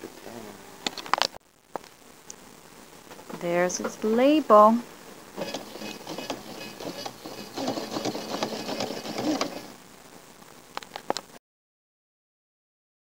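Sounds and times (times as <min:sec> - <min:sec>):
sewing machine stitching: 0:05.4 - 0:09.8.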